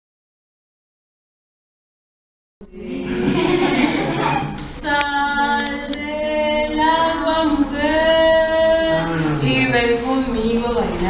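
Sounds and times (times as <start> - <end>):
room noise: 2.6 - 11.0
voices: 2.6 - 11.0
woman singing unaccompanied: 4.6 - 11.0.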